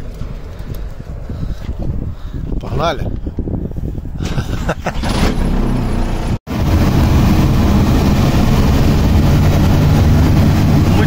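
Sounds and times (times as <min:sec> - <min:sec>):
road noise hum: 0:00.0 - 0:11.0
off-road vehicle engine running: 0:04.8 - 0:11.0.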